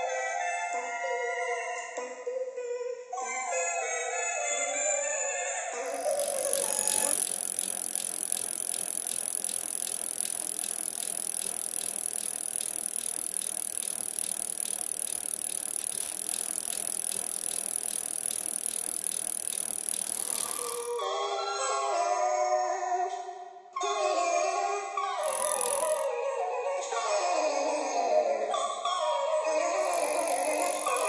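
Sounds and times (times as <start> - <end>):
bicycle drivetrain ticking: 5.8 - 21.0, 25.2 - 26.1, 29.8 - 31.0.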